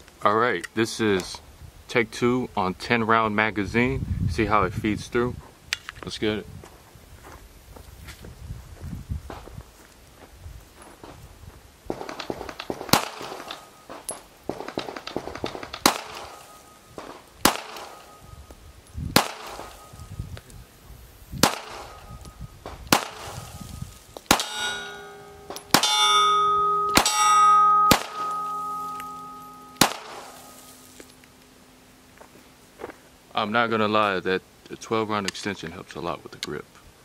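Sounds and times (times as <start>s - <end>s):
pistol shots: 11.9s - 13.7s, 14.5s - 18.2s, 19.2s - 19.9s, 21.4s - 22.0s, 22.9s - 23.4s, 24.3s - 26.2s, 26.9s - 30.5s
steel plate targets ringing: 13.0s - 14.3s, 15.8s - 18.5s, 19.2s - 20.1s, 23.0s - 31.1s.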